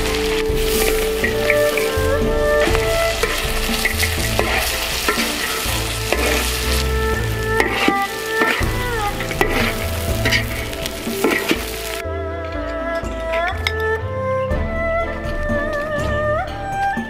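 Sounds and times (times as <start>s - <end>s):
food sizzling in a wok: 0.0s - 12.0s
metal ladle scraping a wok: 0.0s - 12.0s.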